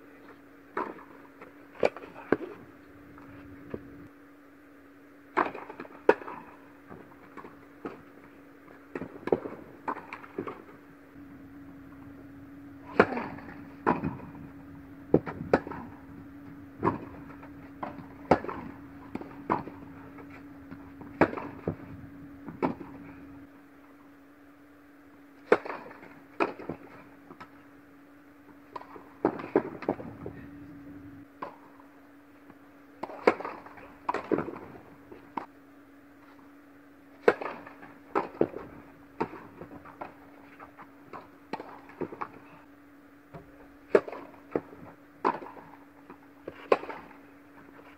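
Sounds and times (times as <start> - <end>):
steady low hum: 0.0 - 47.9
racket striking tennis ball: 5.3 - 6.6, 8.9 - 10.7, 12.8 - 23.3, 25.4 - 27.5, 33.0 - 34.8, 37.2 - 40.8, 43.9 - 47.2
tennis ball bouncing: 8.8 - 23.4, 37.2 - 38.6, 43.9 - 47.2.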